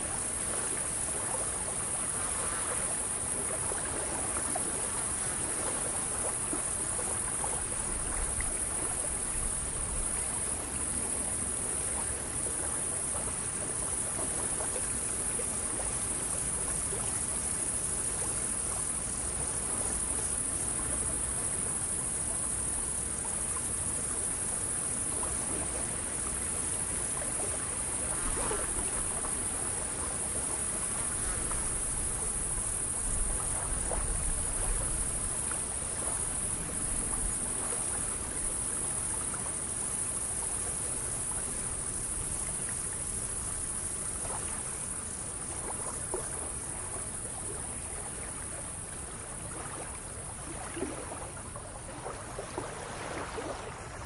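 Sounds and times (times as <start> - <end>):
insects chorus: 0.0 - 54.0
water lapping: 0.0 - 54.0.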